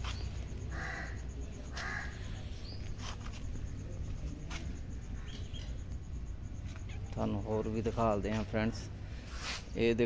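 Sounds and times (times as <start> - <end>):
bird harsh calls: 0.0 - 3.0.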